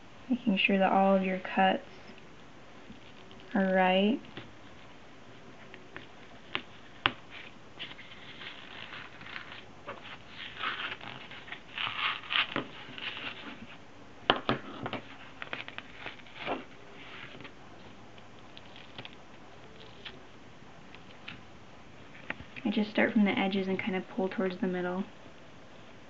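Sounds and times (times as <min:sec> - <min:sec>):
leather tearing: 0:10.4 - 0:12.7.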